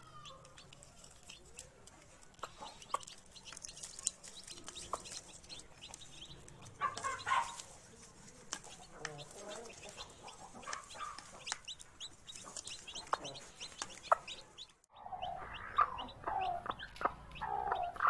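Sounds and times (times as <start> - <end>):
hen clucking: 0.0 - 18.0.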